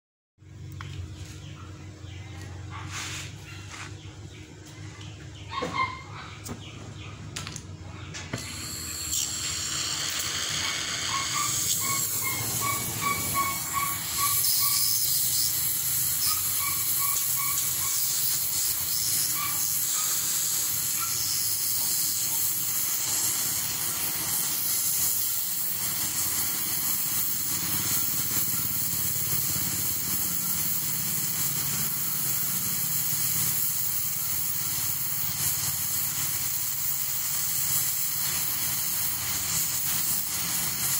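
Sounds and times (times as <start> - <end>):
cutting torch hissing: 8.3 - 40.9.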